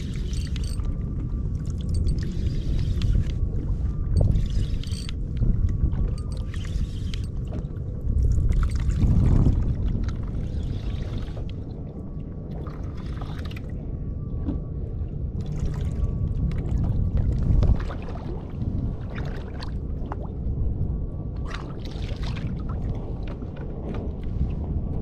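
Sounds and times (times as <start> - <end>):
wind rumble on microphone: 0.0 - 25.0
small clicks: 0.2 - 0.9, 4.2 - 5.2.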